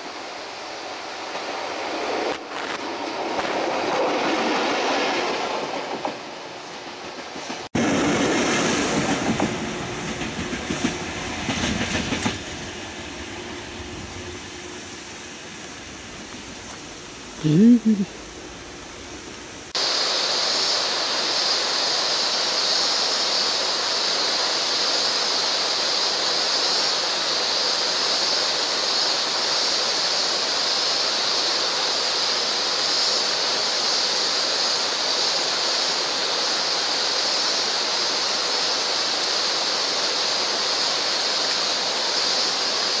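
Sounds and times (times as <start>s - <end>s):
mountain river rushing: 7.7s - 10.3s, 19.7s - 43.0s.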